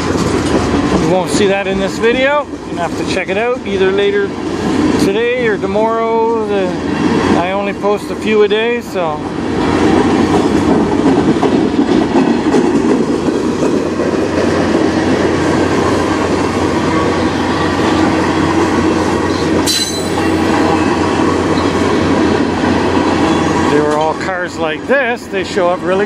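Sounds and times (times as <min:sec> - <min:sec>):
freight train wheels rumbling on rails: 0:00.0 - 0:26.0
sharp high-pitched squeal: 0:19.6 - 0:20.6.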